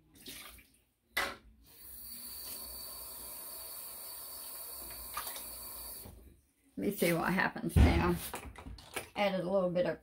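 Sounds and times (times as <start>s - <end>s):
kitchen tap running: 1.8s - 6.1s.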